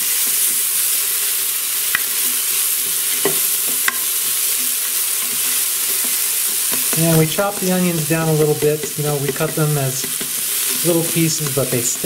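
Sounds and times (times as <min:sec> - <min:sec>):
onions sizzling in butter: 0:00.0 - 0:12.0
spoon knocking against pot: 0:03.2 - 0:11.6.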